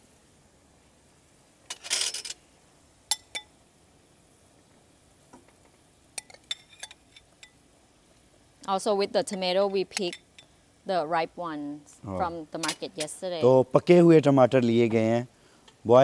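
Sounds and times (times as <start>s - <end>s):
utensil clinking against pot: 6.2s - 7.6s.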